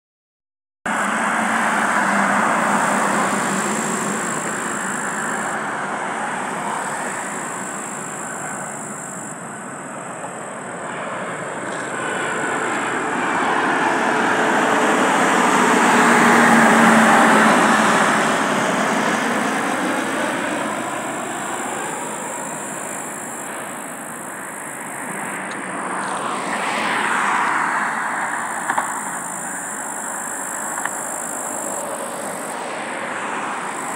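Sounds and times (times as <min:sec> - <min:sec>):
jet airliner passing overhead: 0:00.9 - 0:33.9
road traffic: 0:00.9 - 0:33.9
vehicle passing: 0:00.9 - 0:33.9.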